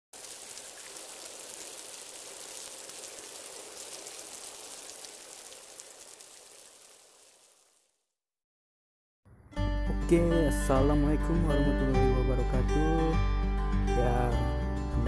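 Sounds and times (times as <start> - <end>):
rain-like hiss with crackle: 0.1 - 8.1.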